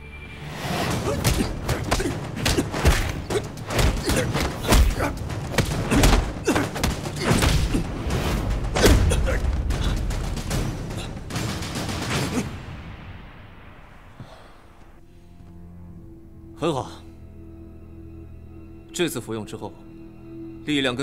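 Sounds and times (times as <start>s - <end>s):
short grunts: 0.9s - 8.0s
punches landing with dull thuds: 0.9s - 12.8s.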